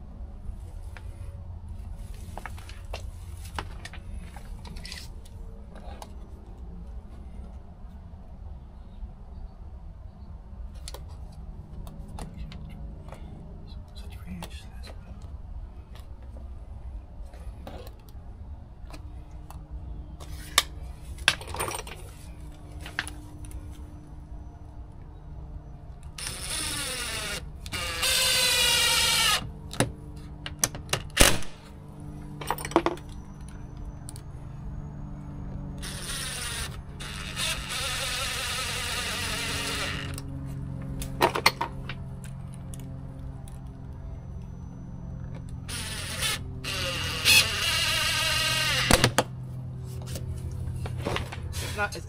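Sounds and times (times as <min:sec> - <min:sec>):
cordless drill motor whine: 0:26.1 - 0:29.6, 0:35.8 - 0:40.3, 0:45.6 - 0:49.2.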